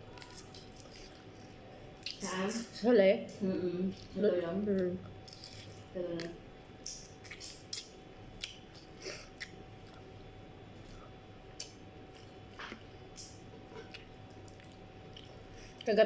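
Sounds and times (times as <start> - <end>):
person sucking and chewing: 0.0 - 2.2.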